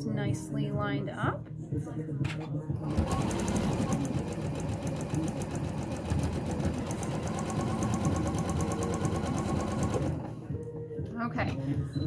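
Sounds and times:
sewing machine stitching: 0:02.8 - 0:10.4.

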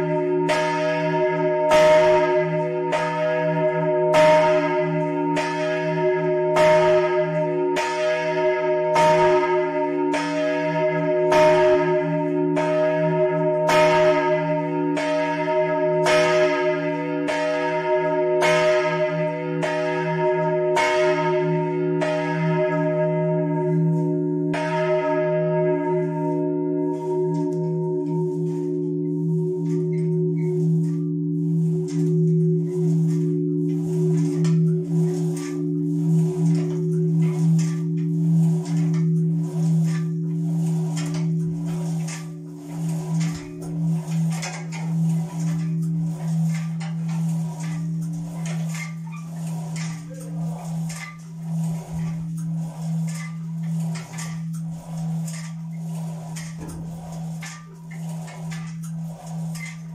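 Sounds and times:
church bell pealing: 0:00.0 - 0:59.9
deep bell hum: 0:21.9 - 0:44.2.

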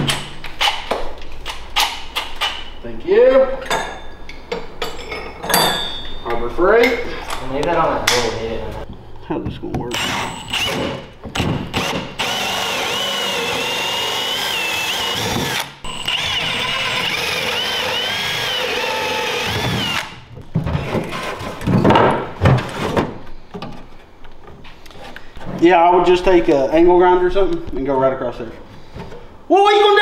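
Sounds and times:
drill with hole saw cutting wood: 0:10.0 - 0:11.1, 0:11.7 - 0:20.2.

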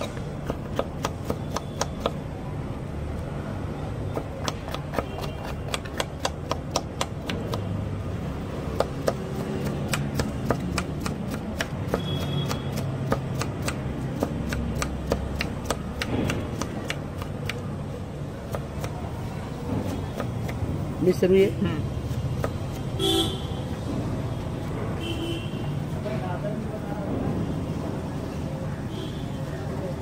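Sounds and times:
knife chopping on wooden board: 0:00.0 - 0:02.2, 0:04.1 - 0:07.8, 0:08.6 - 0:17.7, 0:18.5 - 0:20.7, 0:22.0 - 0:23.0.

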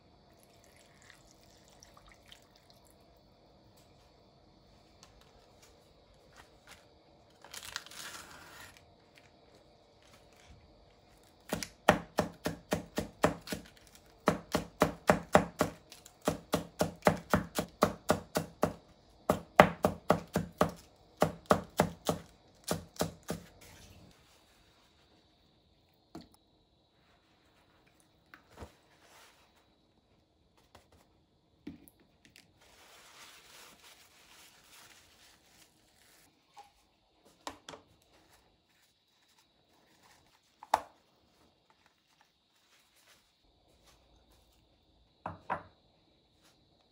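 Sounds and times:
knife chopping lettuce on wooden board: 0:11.4 - 0:23.6.

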